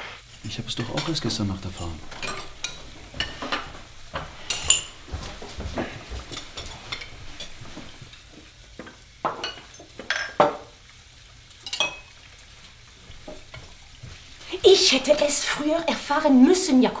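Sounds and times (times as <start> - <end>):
plates glasses and cutlery clinking: 0.4 - 8.2, 8.8 - 10.7, 11.6 - 12.2.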